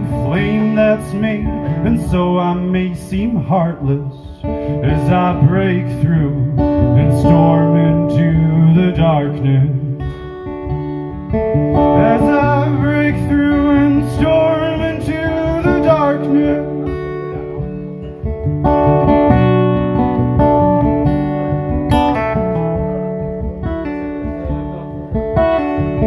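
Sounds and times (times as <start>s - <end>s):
man singing folk ballad: 0.0s - 19.6s
acoustic guitar: 0.0s - 26.0s.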